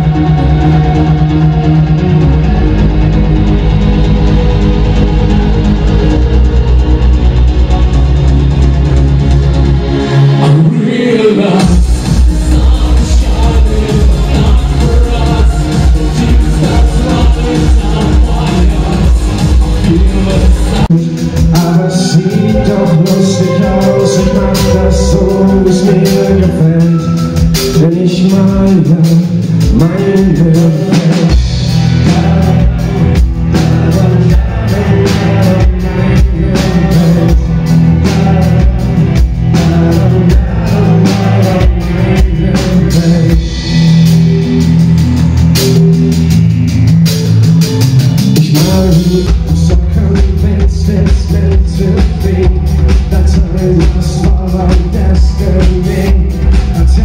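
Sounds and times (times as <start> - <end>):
live synth-pop band playing: 0.0 - 57.0
man singing: 10.3 - 44.9, 48.2 - 57.0.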